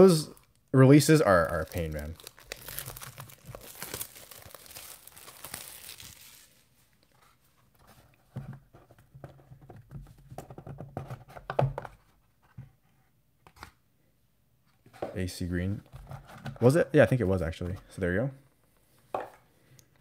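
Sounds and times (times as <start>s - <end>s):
shrink wrap crinkling and tearing: 0.0s - 7.1s.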